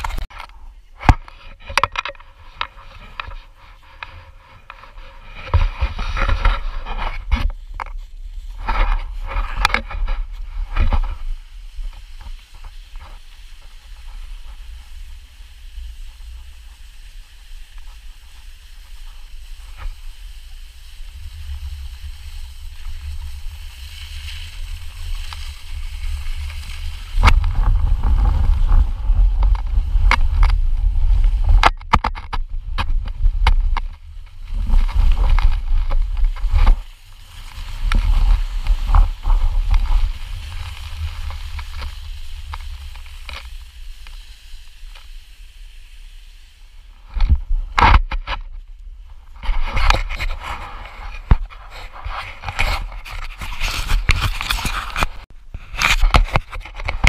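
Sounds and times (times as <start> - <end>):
sled scraping over snow: 0.0 - 57.0
wind buffeting the microphone: 5.3 - 43.8.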